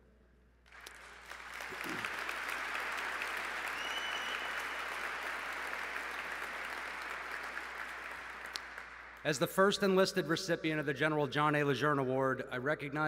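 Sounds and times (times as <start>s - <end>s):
audience applauding: 0.7s - 9.3s.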